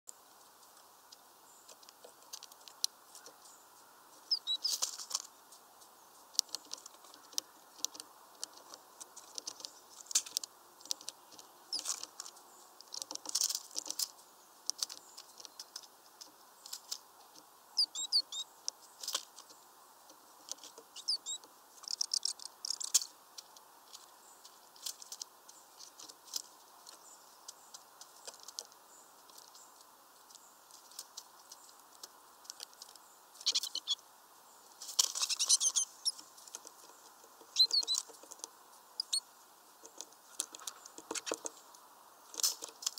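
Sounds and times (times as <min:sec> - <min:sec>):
bird pecking at peanuts: 0:00.4 - 0:34.0, 0:34.8 - 0:39.2, 0:39.8 - 0:42.9
short high bird chirps: 0:04.3 - 0:04.8, 0:17.8 - 0:18.5, 0:21.0 - 0:21.4, 0:33.4 - 0:34.0, 0:35.2 - 0:36.2, 0:37.6 - 0:38.0, 0:39.0 - 0:39.2.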